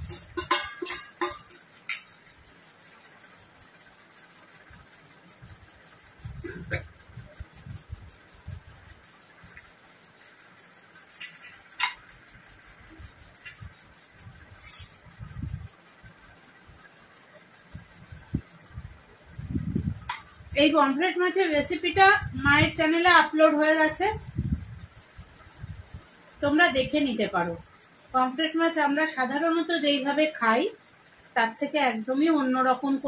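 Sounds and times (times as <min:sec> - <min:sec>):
metal spoon clinking on plate: 0:00.0 - 0:02.2, 0:11.2 - 0:12.1.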